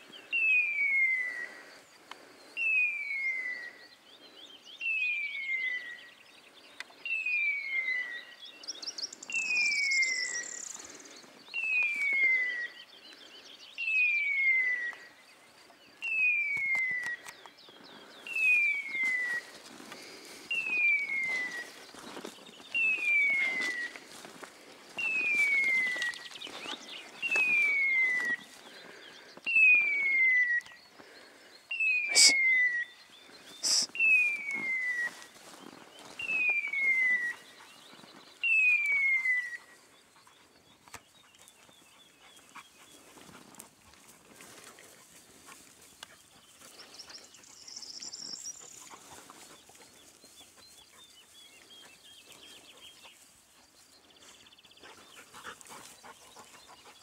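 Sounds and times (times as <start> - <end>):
rustling through tall grass: 18.3 - 29.0, 33.3 - 38.0, 42.4 - 54.5.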